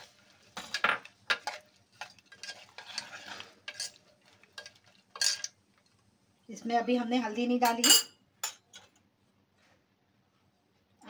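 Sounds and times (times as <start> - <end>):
spoon scraping and knocking pot: 0.6 - 4.0.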